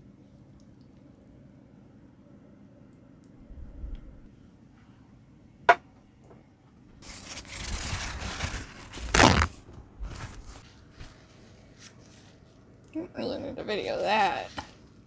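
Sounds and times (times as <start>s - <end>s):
paper towel rustling and tearing: 7.0s - 12.4s.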